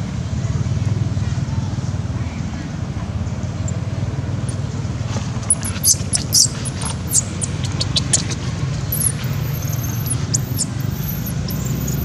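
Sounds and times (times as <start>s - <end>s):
baby monkey squeaking: 5.3s - 12.0s.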